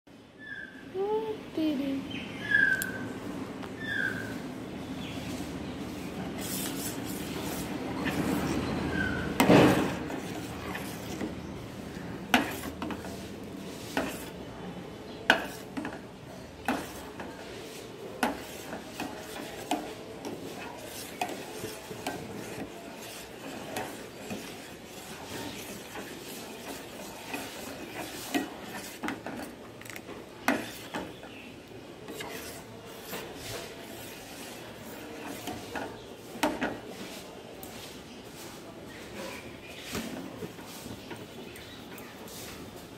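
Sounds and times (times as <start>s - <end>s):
ladle scraping metal pot: 6.4s - 14.4s, 15.3s - 37.2s.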